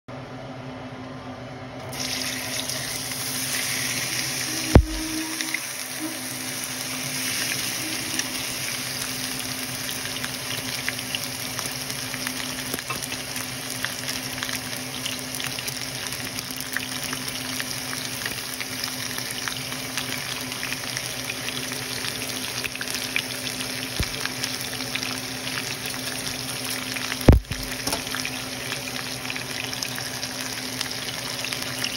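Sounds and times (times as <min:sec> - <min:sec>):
steak sizzling in a frying pan: 0:01.9 - 0:31.9.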